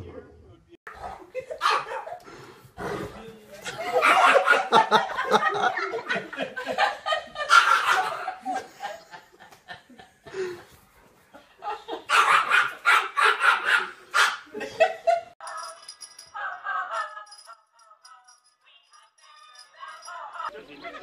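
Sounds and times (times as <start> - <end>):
people laughing: 1.0 - 2.3, 3.6 - 12.4, 14.5 - 15.4, 16.4 - 18.0, 20.0 - 21.0
dog barking: 1.6 - 2.2, 7.5 - 8.2, 12.1 - 14.5.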